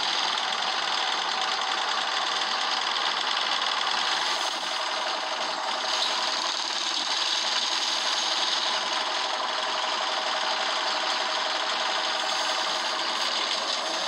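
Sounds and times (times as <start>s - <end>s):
bus engine running: 0.0s - 14.0s
fast mechanical clatter: 0.0s - 14.0s.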